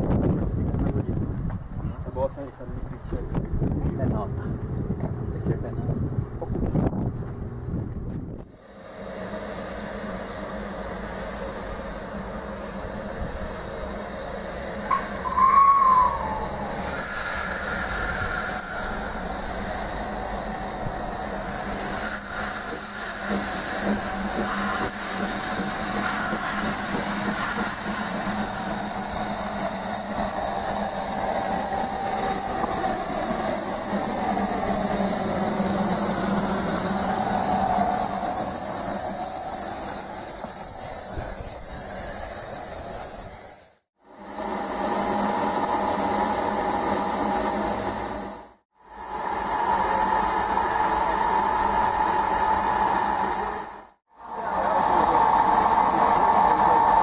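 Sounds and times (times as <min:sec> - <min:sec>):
steam locomotive hissing steam: 0:08.4 - 0:57.0
steam whistle blast: 0:14.9 - 0:19.6.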